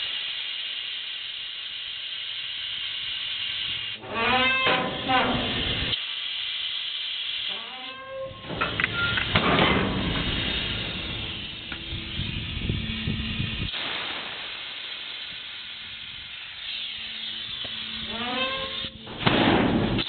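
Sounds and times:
compressed air hissing: 0.0 - 20.0
short rising squeaks: 4.0 - 5.6, 18.0 - 19.0.

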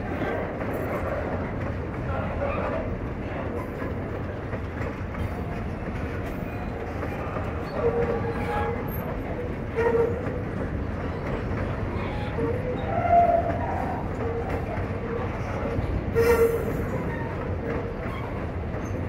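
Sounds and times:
train wheels rumbling on rails: 0.0 - 19.0
short wheel squeals: 16.1 - 17.4.

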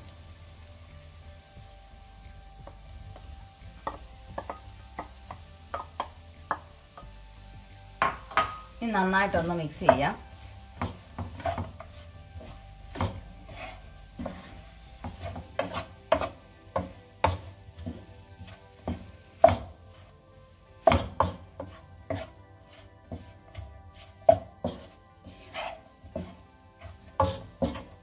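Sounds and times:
spatula scraping frying pan: 9.4 - 20.1, 20.8 - 28.0.

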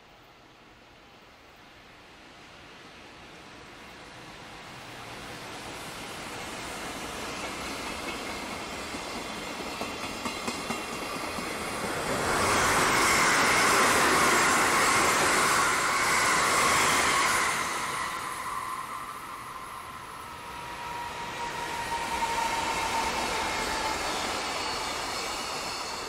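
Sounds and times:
electric commuter train passing: 0.0 - 26.0
freight train rolling by: 1.0 - 26.0.

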